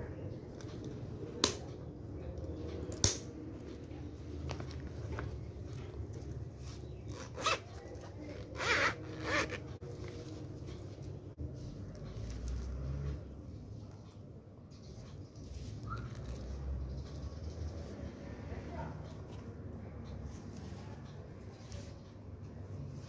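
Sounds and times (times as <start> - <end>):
zipper being pulled closed: 6.6 - 9.8.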